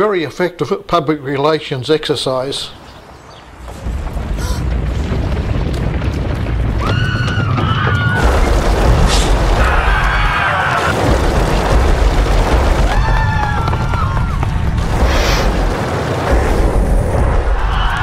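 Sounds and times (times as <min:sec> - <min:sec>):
stampede rumble: 0:03.5 - 0:18.0
people screaming: 0:06.7 - 0:08.6, 0:09.5 - 0:11.4, 0:12.6 - 0:14.8, 0:17.4 - 0:18.0.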